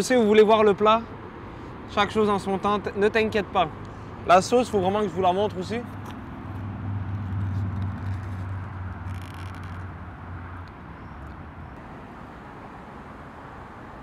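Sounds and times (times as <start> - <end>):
outdoor street noise: 0.0 - 14.0
vehicle engine rumble: 5.0 - 14.0.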